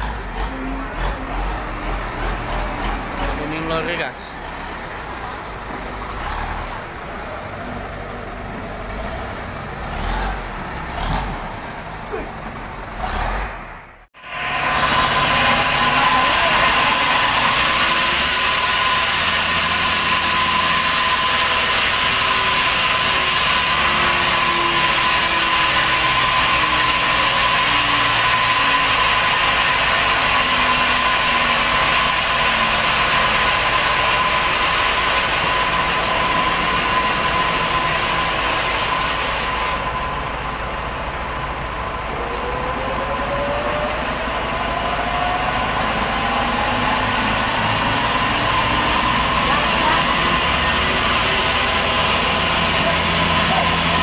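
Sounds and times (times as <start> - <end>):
sawmill machinery hissing and whining: 0.0 - 12.2, 14.2 - 54.0.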